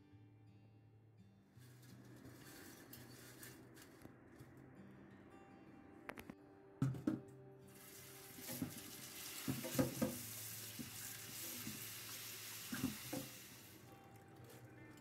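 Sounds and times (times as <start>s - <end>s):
hands splashing rinsing noodles: 7.8s - 13.7s
tap water running into steel bowl: 7.8s - 14.2s.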